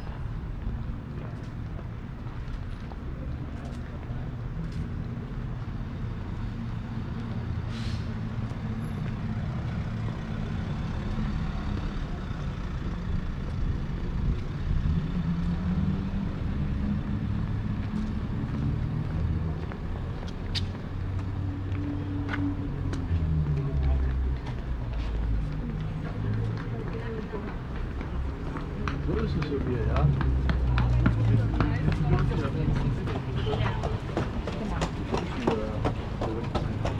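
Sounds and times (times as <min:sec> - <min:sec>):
large vehicle engine humming: 0:00.0 - 0:36.9
brief hiss: 0:07.7 - 0:08.1.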